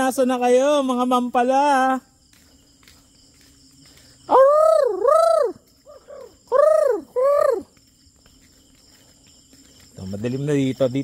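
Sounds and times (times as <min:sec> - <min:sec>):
faint crickets: 0:00.0 - 0:11.0
high voice calling out: 0:04.3 - 0:07.7.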